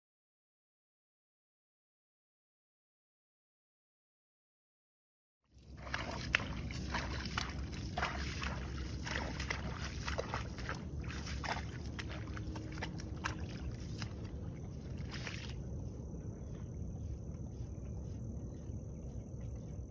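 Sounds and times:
hooves sloshing in mud: 0:05.5 - 0:19.9
hooves clicking: 0:05.6 - 0:19.9
wind rumble on microphone: 0:05.6 - 0:19.9.

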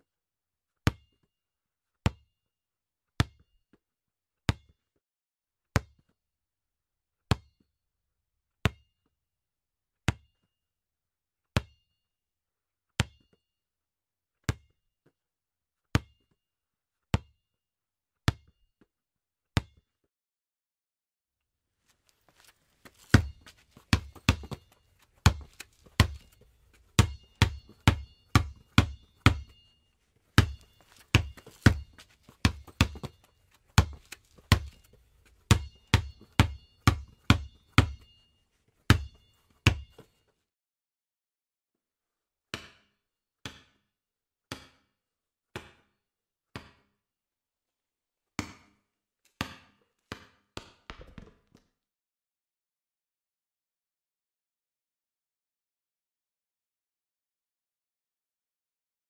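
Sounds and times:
basketball bouncing on concrete: 0:00.9 - 0:01.2, 0:02.1 - 0:02.3, 0:03.2 - 0:03.5, 0:04.5 - 0:04.8, 0:07.3 - 0:07.6, 0:16.0 - 0:16.2, 0:17.2 - 0:17.4, 0:22.3 - 0:38.2, 0:38.9 - 0:40.1, 0:45.6 - 0:45.9, 0:46.5 - 0:46.9, 0:48.4 - 0:48.8, 0:49.4 - 0:51.7.

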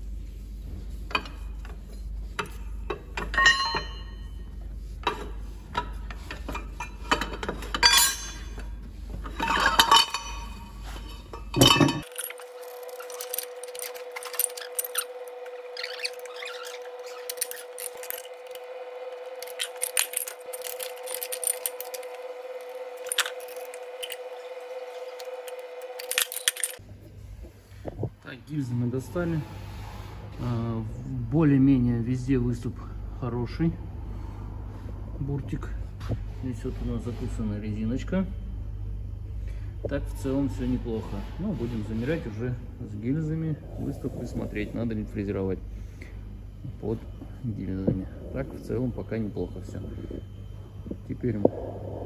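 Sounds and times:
steady hum: 0:00.0 - 0:52.0
metal tools clinking and knocking: 0:02.4 - 0:04.4, 0:05.0 - 0:18.6, 0:19.4 - 0:24.3, 0:25.0 - 0:26.8.

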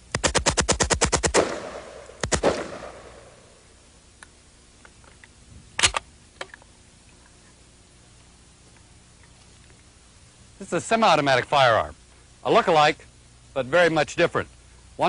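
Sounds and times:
automatic rifle firing bursts: 0:00.1 - 0:03.4
faint gun clicks: 0:04.2 - 0:07.3.

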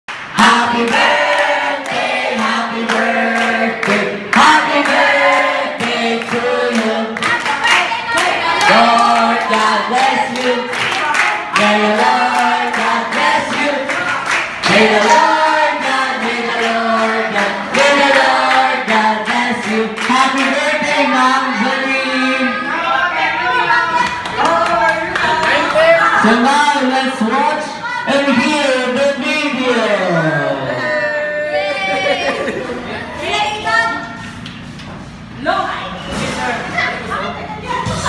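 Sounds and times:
group singing unaccompanied: 0:00.3 - 0:26.0.

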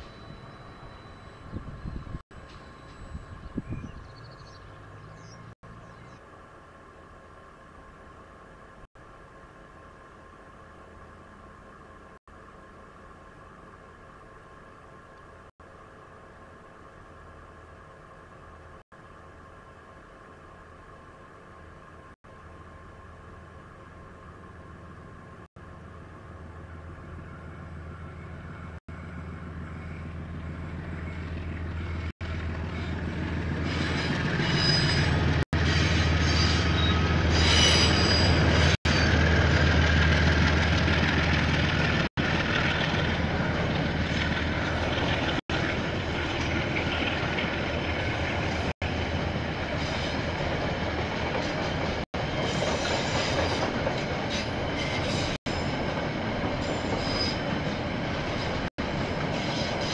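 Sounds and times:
train wheel squeal: 0:00.0 - 0:04.0, 0:28.1 - 0:39.4, 0:49.7 - 0:50.3, 0:52.3 - 0:59.9
diesel train engine drone: 0:00.0 - 0:59.9.

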